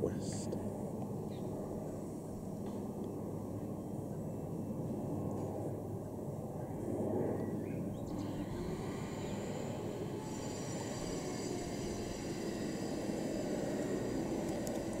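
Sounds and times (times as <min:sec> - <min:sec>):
distant helicopter rotor drone: 0:00.0 - 0:15.0
high turbine whine: 0:00.0 - 0:15.0.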